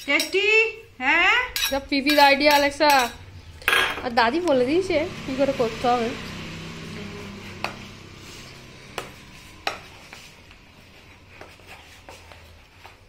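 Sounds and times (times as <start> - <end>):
metal spoon clinking on bowl: 0.0 - 0.4, 1.5 - 4.1.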